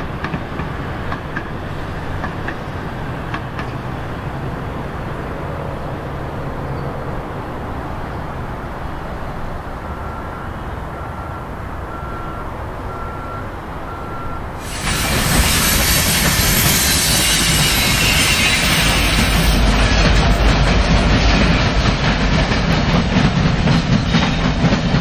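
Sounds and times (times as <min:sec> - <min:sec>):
train wheels rolling on rails: 0:00.0 - 0:10.1, 0:14.6 - 0:25.0
low rumble of trains: 0:00.0 - 0:25.0
short beeps: 0:09.9 - 0:14.5
wheel squeal and hiss: 0:14.6 - 0:20.0.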